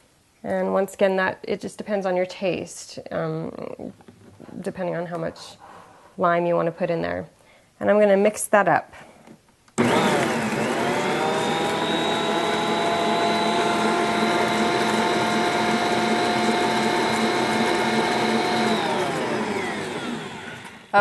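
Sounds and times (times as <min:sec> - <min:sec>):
stand mixer motor whining: 0:09.8 - 0:20.9.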